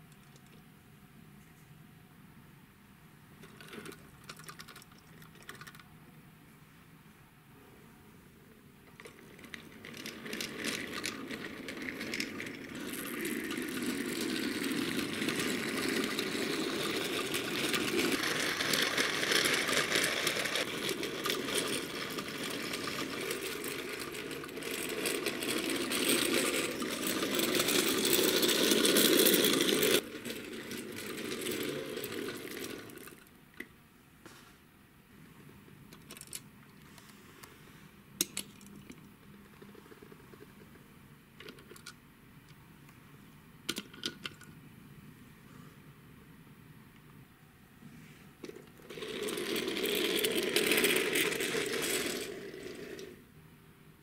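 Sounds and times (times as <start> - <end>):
toy wheels rolling on wooden floor: 3.4 - 5.8, 8.9 - 33.3, 38.2 - 40.8, 48.4 - 53.3.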